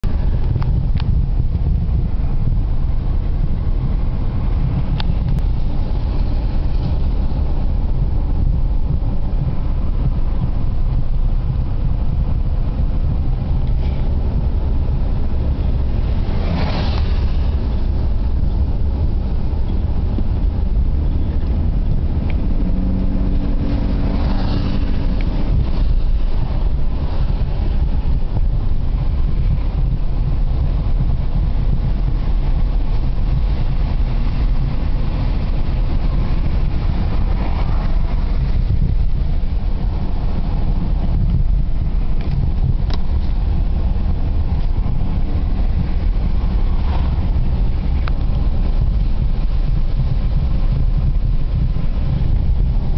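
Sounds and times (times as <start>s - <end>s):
car cabin engine and road rumble: 0.0s - 52.9s
louder swishes: 14.8s - 20.1s.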